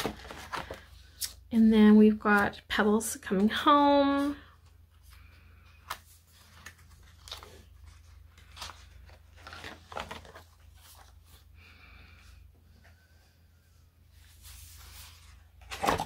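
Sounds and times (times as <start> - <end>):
pages rustling and crinkling: 0.0 - 1.2, 4.2 - 11.5, 14.2 - 16.0.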